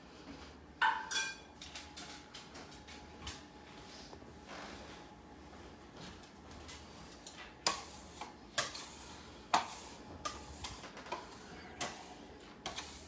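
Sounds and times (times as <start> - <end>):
dishes and utensils clinking: 0.8 - 2.3.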